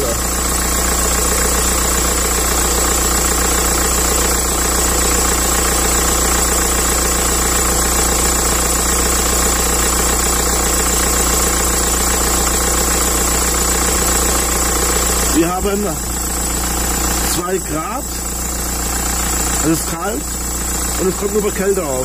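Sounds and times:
car engine idling: 0.0 - 22.0.

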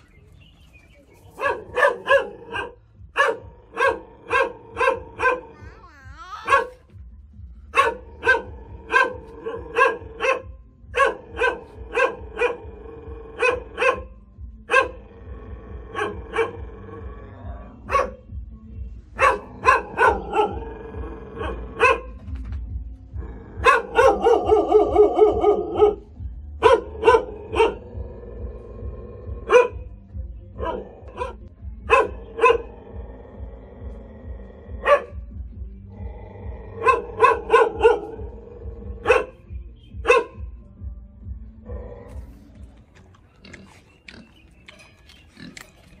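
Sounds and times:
dog barking aggressively: 1.4 - 5.6, 6.4 - 6.9, 7.7 - 12.7, 13.4 - 15.1, 15.9 - 16.6, 17.8 - 18.2, 19.2 - 20.8, 21.4 - 22.3, 23.5 - 27.9, 29.4 - 29.9, 30.6 - 32.8, 34.8 - 35.2, 36.8 - 39.4, 40.0 - 40.4.

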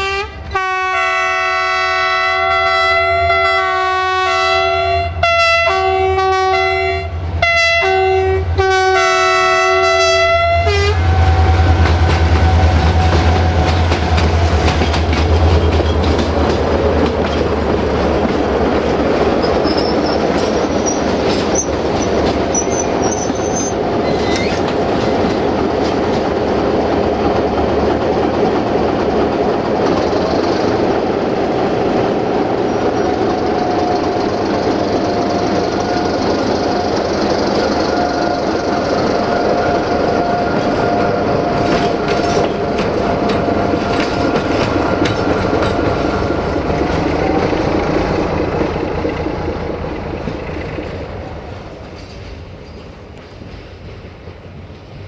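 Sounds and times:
locomotive horn blasts: 0.0 - 13.8
locomotive engine drone: 2.0 - 53.4
wheels clattering over rail joints: 11.8 - 30.0, 40.0 - 51.0
wheel squeal: 19.4 - 24.8.

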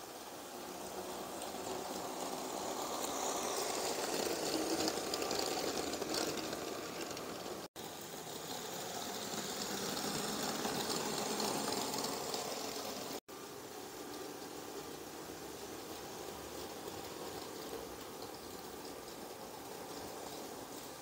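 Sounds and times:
toy train motor whining: 0.0 - 13.2
plastic wheels rolling on track: 0.0 - 21.0.

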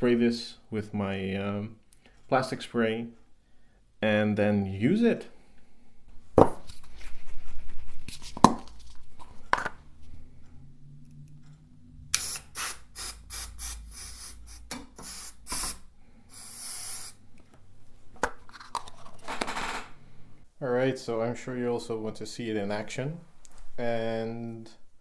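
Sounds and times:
aerosol spray hissing: 12.2 - 17.2.

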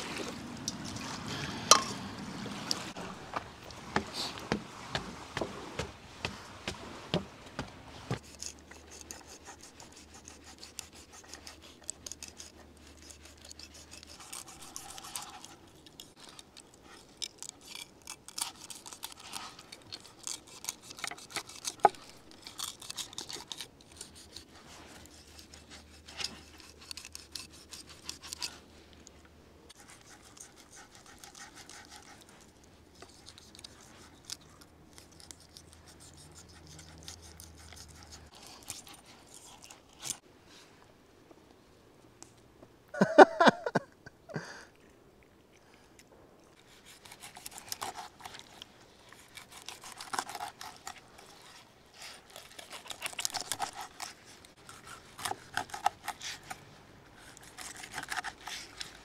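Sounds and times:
footsteps on wooden stairs: 3.2 - 8.2
knife scraping fish skin: 7.6 - 16.2, 17.2 - 28.6, 46.6 - 56.6, 57.2 - 59.0.

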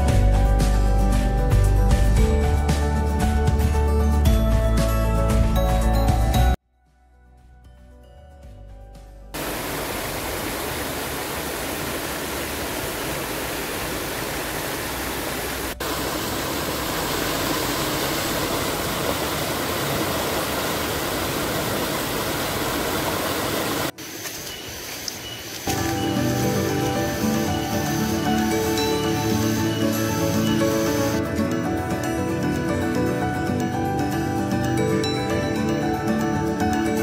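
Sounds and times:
stream water rushing over boulders: 9.4 - 31.2.

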